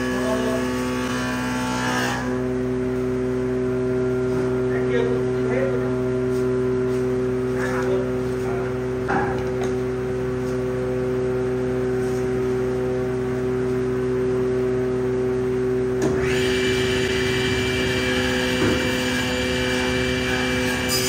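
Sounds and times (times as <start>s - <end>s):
power tool motor humming: 0.0s - 2.5s, 16.0s - 21.0s.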